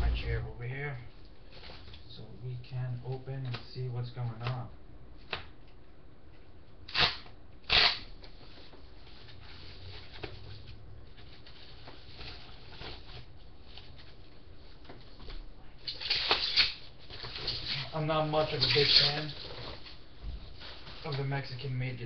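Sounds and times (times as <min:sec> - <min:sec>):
paper and plastic bag crinkling: 0:15.8 - 0:21.8.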